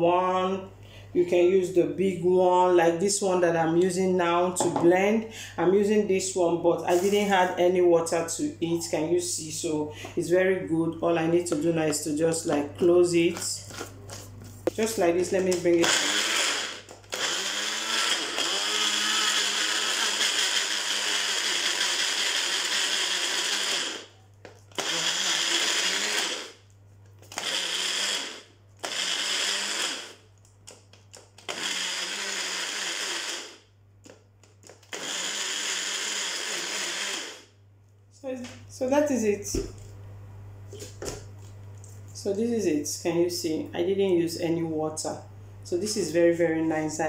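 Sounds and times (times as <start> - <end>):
blender running in pulses: 15.8 - 26.6, 27.2 - 30.2, 31.4 - 33.6, 34.8 - 37.6.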